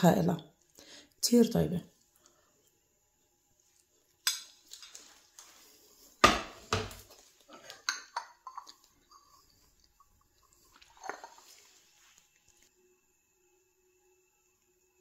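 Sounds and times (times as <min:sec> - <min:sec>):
cutlery and dishes clinking: 0:07.5 - 0:09.4.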